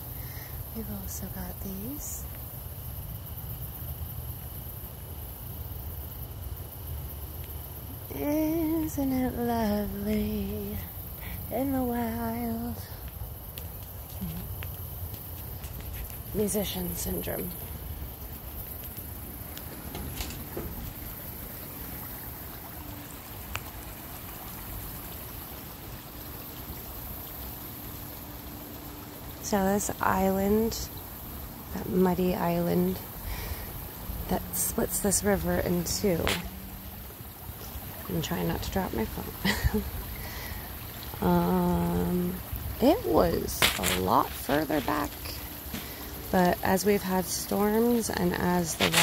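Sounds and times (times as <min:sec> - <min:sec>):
insects chirring: 0:00.0 - 0:49.0
river flowing over rocks: 0:42.0 - 0:46.3.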